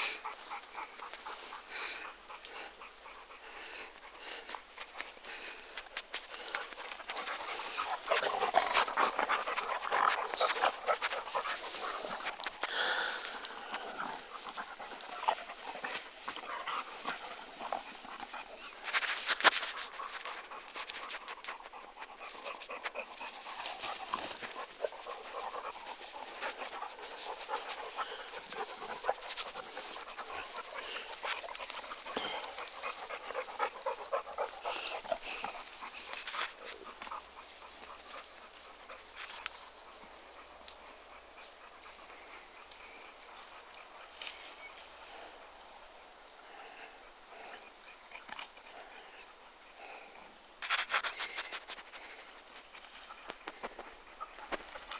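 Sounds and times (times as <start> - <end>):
dog panting: 0.0 - 54.9
small clicks and rustles: 2.4 - 45.5, 47.4 - 49.9, 50.6 - 54.9.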